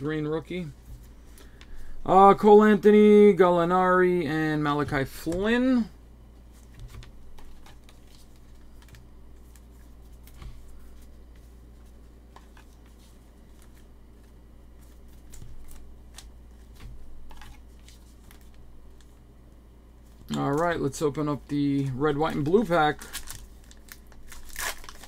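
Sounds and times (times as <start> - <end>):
steady low hum: 0.0 - 25.0
cards clicking and rustling: 6.6 - 19.2, 20.1 - 25.0.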